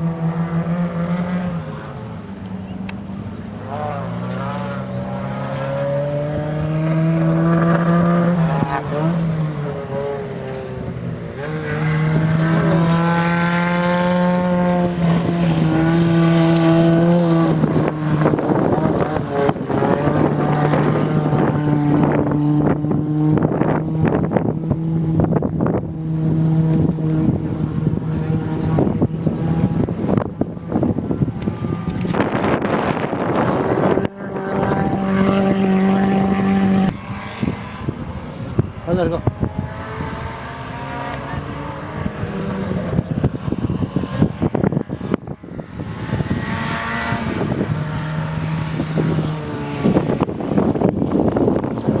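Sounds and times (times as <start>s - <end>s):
rally car engine revving: 0.0s - 52.0s.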